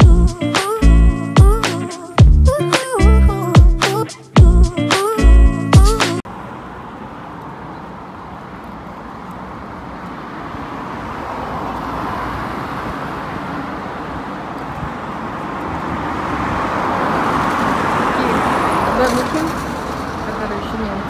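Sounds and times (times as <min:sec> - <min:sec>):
road traffic rushing: 0:00.0 - 0:21.0.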